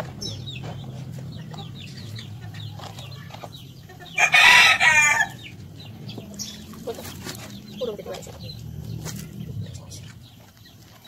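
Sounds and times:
faint hen clucking: 0:00.1 - 0:10.6
rooster crowing: 0:04.1 - 0:05.5.

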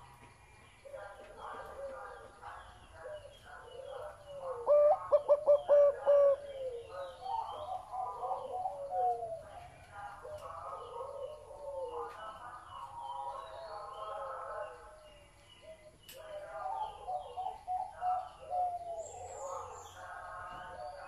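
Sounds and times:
dove cooing: 0:00.8 - 0:12.2, 0:15.6 - 0:21.0.

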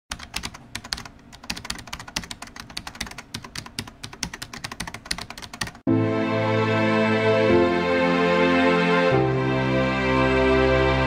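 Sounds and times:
keyboard typing: 0:00.1 - 0:05.8.

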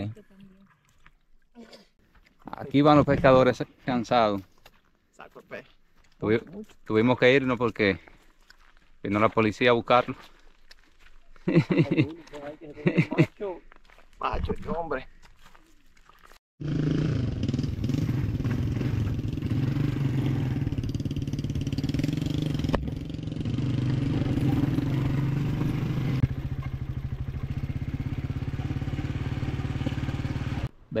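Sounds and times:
motorcycle engine running: 0:16.6 - 0:30.7.

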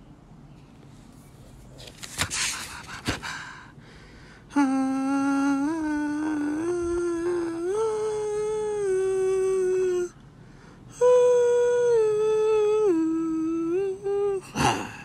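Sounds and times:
person humming slow tune: 0:04.5 - 0:10.2, 0:10.9 - 0:15.0.

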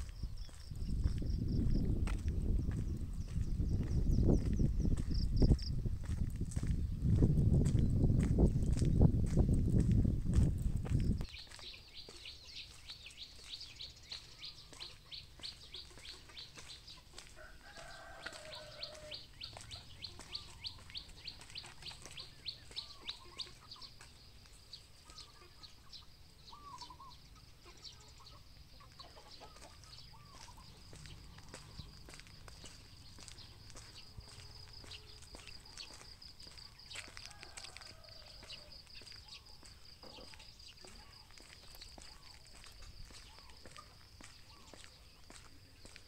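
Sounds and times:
low rumble on microphone: 0:00.0 - 0:11.2
small birds chirping: 0:00.0 - 0:46.0
distant rooster crowing: 0:17.2 - 0:20.6, 0:36.8 - 0:40.4.

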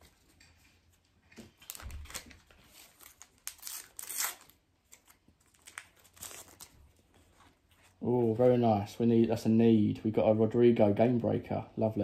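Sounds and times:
card pack wrapper crinkling: 0:01.5 - 0:08.0.

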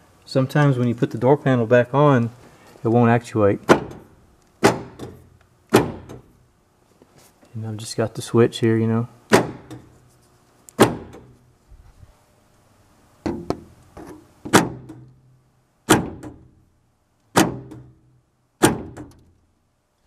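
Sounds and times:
door lock actuator clunks: 0:03.6 - 0:06.3.

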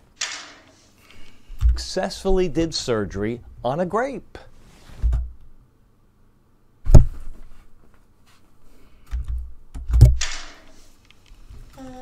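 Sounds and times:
short breathy hiss: 0:00.4 - 0:01.6.

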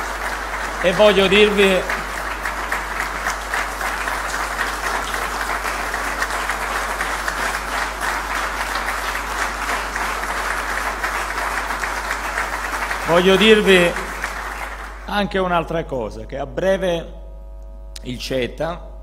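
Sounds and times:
audience applauding: 0:00.0 - 0:15.2.

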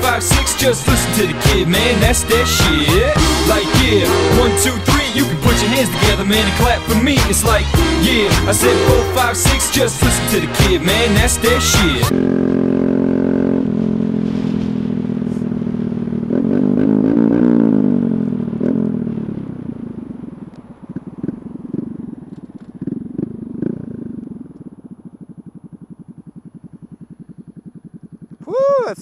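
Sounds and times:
motorcycle engine revving: 0:00.0 - 0:28.6
exhaust pops and crackles: 0:09.2 - 0:29.0.

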